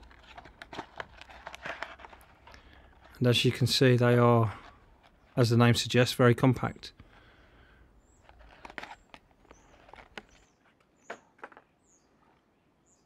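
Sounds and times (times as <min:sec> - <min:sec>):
plastic packaging crackling: 0:00.0 - 0:03.8, 0:08.2 - 0:10.8.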